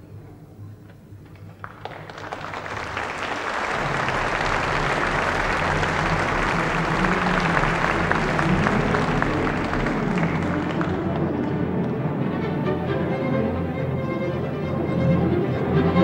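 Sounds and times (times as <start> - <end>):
audience applauding: 1.3 - 12.1.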